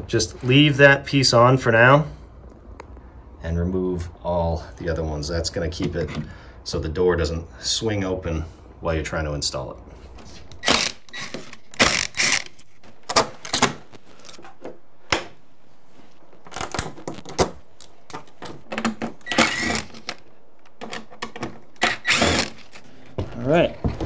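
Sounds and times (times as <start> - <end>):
sharp clicks and knocks: 16.4 - 24.0
cordless drill running: 21.9 - 22.6.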